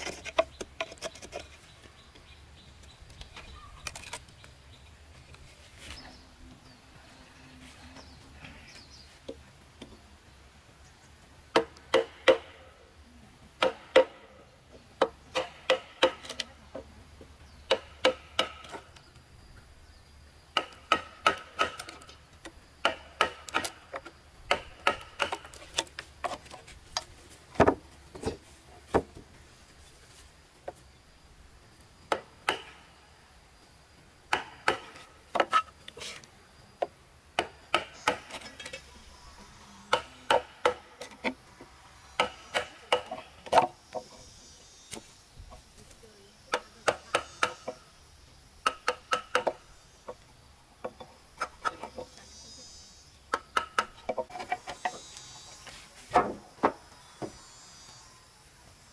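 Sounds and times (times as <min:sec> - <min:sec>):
hand tool striking wood: 0:15.0 - 0:16.4, 0:17.7 - 0:18.8, 0:20.6 - 0:22.1, 0:22.8 - 0:29.2, 0:32.1 - 0:32.8, 0:34.3 - 0:36.2, 0:37.4 - 0:38.7, 0:39.9 - 0:41.4, 0:42.2 - 0:44.1, 0:48.6 - 0:49.6, 0:53.3 - 0:55.0.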